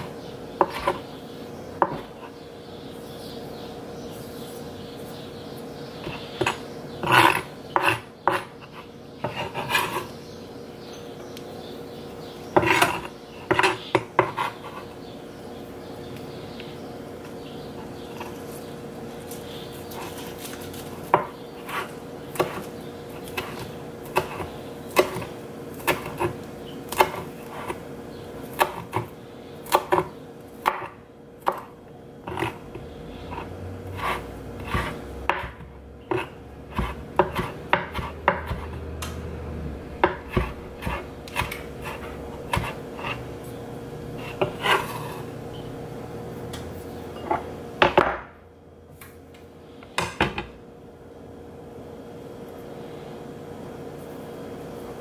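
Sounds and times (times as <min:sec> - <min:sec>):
steady hum: 0:00.0 - 0:55.0
knife chopping on cutting board: 0:00.6 - 0:01.0, 0:06.0 - 0:08.5, 0:12.6 - 0:14.6, 0:21.1 - 0:27.8, 0:28.5 - 0:31.7, 0:32.3 - 0:32.6, 0:33.3 - 0:38.8, 0:40.0 - 0:43.2.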